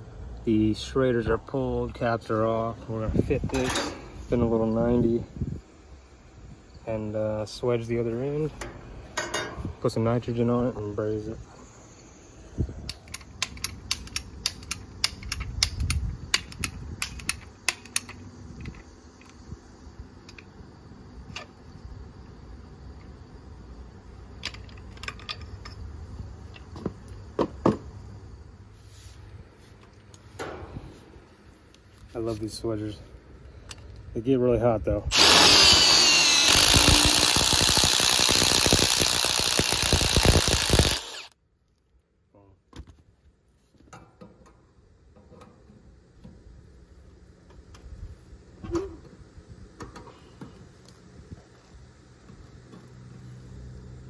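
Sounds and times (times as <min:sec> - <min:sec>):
impact driver whining and hammering: 0:35.1 - 0:41.4.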